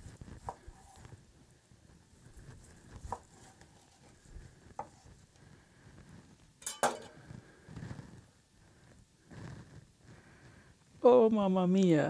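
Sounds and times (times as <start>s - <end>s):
knife slicing steak: 0.4s - 1.1s, 2.8s - 5.2s.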